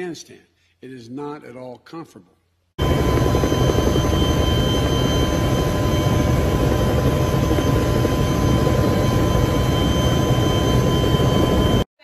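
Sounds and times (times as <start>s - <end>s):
helicopter rotor and engine noise: 2.8s - 11.9s
thin high whines: 2.8s - 11.9s.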